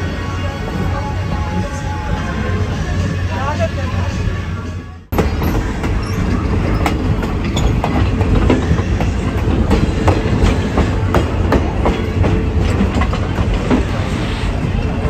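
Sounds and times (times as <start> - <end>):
railcar rolling rumble: 0.0 - 15.0
wheels clickety-clack: 5.2 - 14.0.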